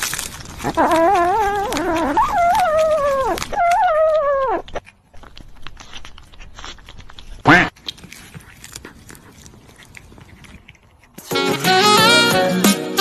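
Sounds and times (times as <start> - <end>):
cat chewing treat: 0.0 - 3.5, 4.6 - 11.3
cat whining calls: 0.6 - 4.8.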